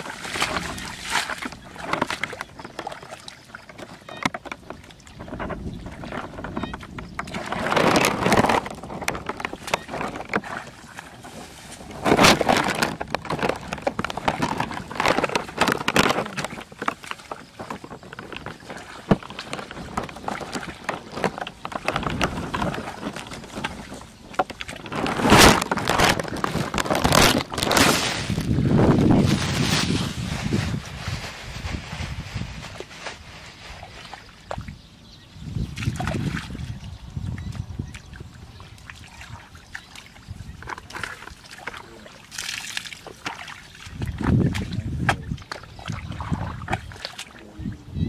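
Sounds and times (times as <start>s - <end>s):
hands splashing in muddy water: 0.0s - 3.6s, 37.6s - 47.4s.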